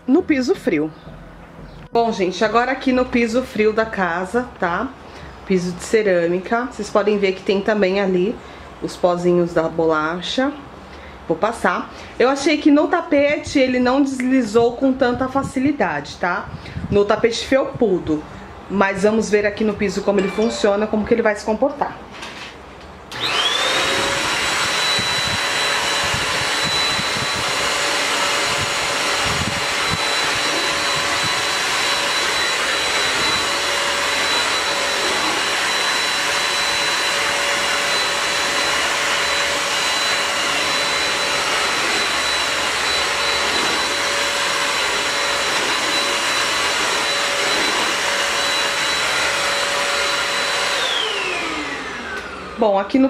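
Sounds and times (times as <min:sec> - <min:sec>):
vacuum cleaner motor whine: 0:23.1 - 0:53.0
suction rushing on tile floor: 0:23.2 - 0:51.4.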